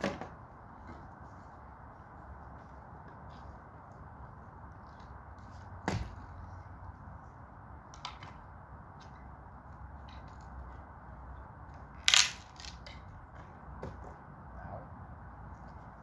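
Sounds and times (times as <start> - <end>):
wood cracking: 12.0 - 13.0.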